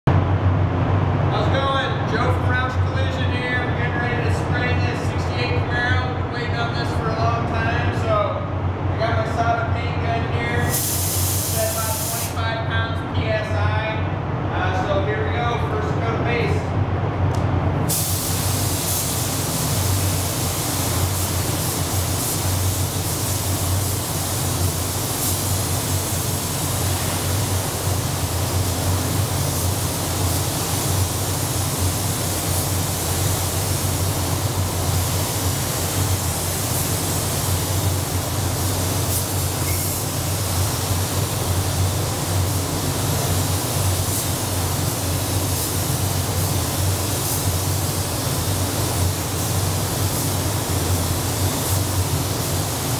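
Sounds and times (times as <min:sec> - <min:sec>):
spray booth air rushing: 0:10.3 - 0:12.5, 0:17.8 - 0:52.9
spray gun hissing: 0:10.6 - 0:12.5, 0:17.9 - 0:52.9.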